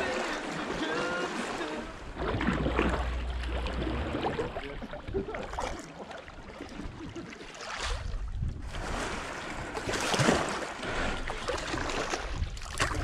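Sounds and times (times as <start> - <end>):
water splashing around kayak: 0.0 - 13.0
low wind rumble: 1.9 - 5.4, 8.0 - 10.0.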